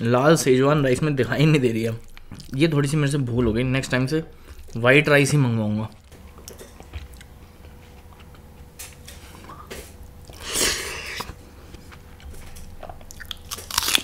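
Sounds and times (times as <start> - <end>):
person chewing food: 2.0 - 2.6, 5.9 - 14.0.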